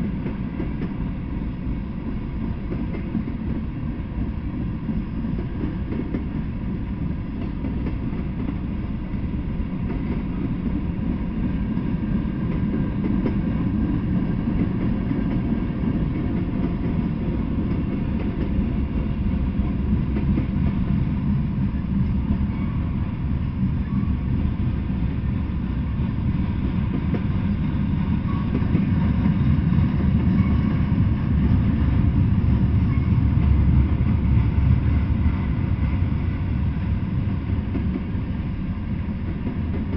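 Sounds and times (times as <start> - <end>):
freight train rumbling past: 0.0 - 39.9.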